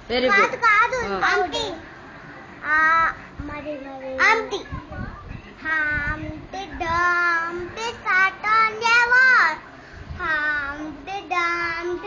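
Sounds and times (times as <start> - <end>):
boy singing unaccompanied: 5.6 - 9.6, 10.2 - 12.0.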